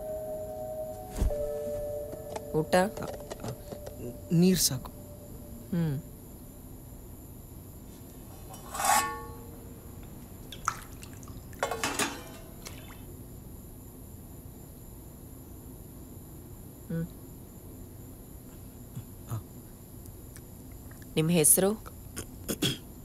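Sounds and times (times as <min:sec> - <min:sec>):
steel vessels clinking: 0:08.4 - 0:09.6, 0:11.5 - 0:12.8.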